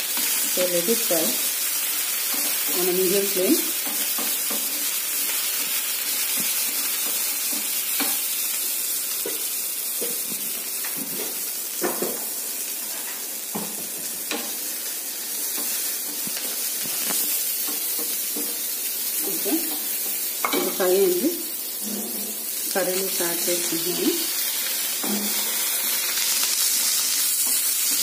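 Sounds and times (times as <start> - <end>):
onions sizzling in oil: 0.0 - 28.0
spatula scraping and tapping pan: 3.8 - 8.3, 15.4 - 18.7.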